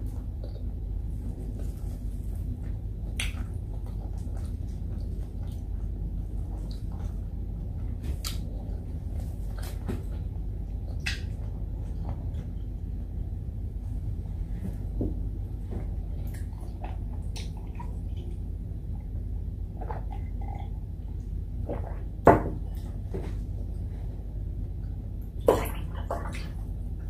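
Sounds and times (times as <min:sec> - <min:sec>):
quiet chewing: 0:00.0 - 0:12.7, 0:15.7 - 0:19.0
steady low hum: 0:00.0 - 0:27.0.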